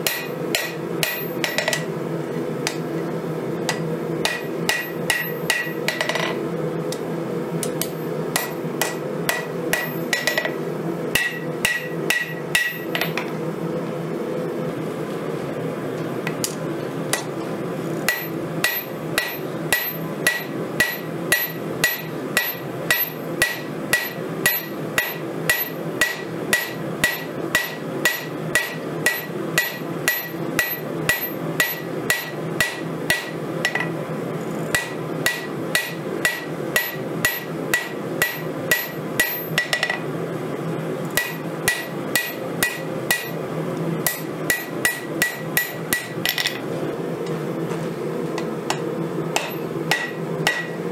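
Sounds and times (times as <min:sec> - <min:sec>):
hammer striking anvil: 0:00.0 - 0:01.9, 0:03.7 - 0:06.4, 0:07.8 - 0:10.6, 0:11.2 - 0:13.2, 0:18.1 - 0:34.0, 0:34.8 - 0:40.0, 0:41.2 - 0:43.4, 0:44.1 - 0:46.6, 0:48.7 - 0:50.8
steady background noise: 0:00.0 - 0:50.9.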